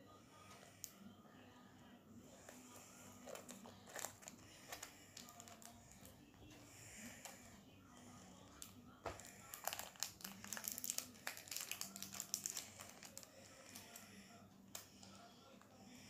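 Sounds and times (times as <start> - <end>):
plastic wrapper crinkling and tearing: 3.2 - 6.1, 8.6 - 14.0.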